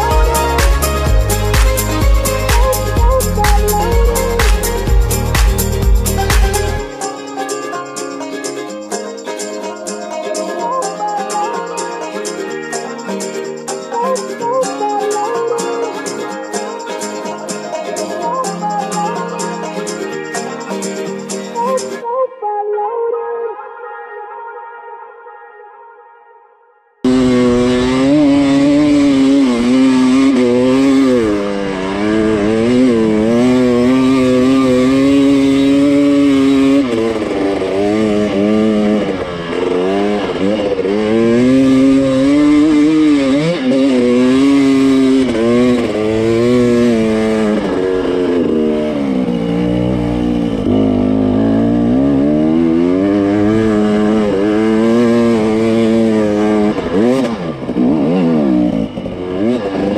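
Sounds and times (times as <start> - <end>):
dirt bike engine revving: 0.0 - 7.0, 27.0 - 59.9.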